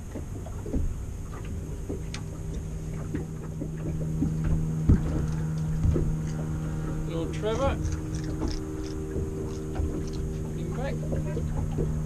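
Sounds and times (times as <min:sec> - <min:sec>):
motorboat engine droning: 0:00.0 - 0:12.0
sharp knocks: 0:03.9 - 0:06.4.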